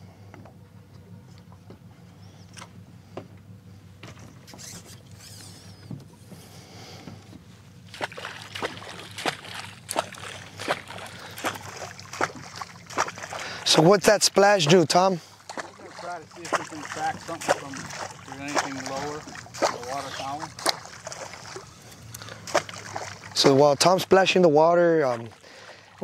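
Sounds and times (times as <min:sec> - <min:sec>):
boat engine idling: 0:00.0 - 0:26.0
sharp water splashes: 0:07.9 - 0:26.0.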